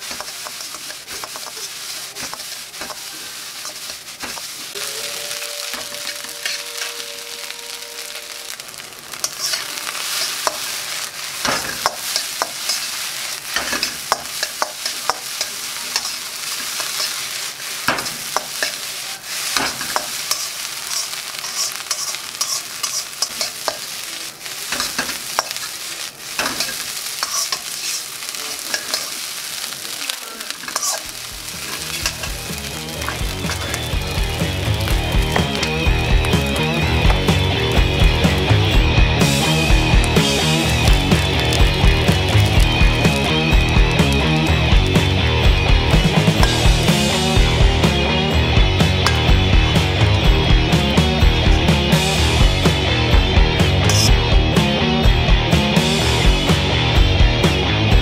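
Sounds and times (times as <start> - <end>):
metal spatula scraping a wok: 0.0 - 36.0, 53.9 - 54.2
rice sizzling in a wok: 0.0 - 58.0.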